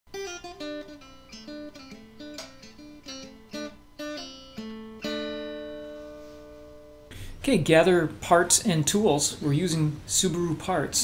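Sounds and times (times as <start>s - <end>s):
acoustic guitar picking and chord: 0.1s - 7.4s.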